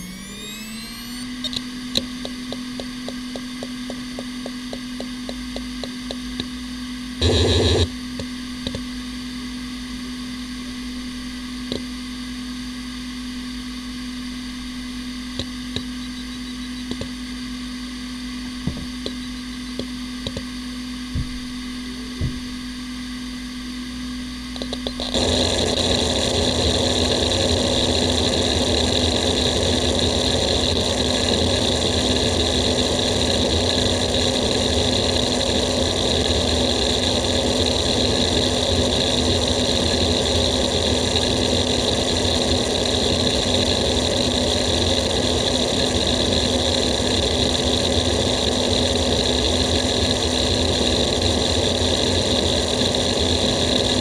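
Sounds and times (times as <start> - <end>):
hard drive spindle whine: 0.0 - 54.0
hard drive heads ticking: 0.6 - 6.5, 15.3 - 17.2, 18.7 - 20.5
hard drive actuator chattering: 7.2 - 8.9, 15.3 - 17.4, 18.5 - 20.5, 24.5 - 25.9.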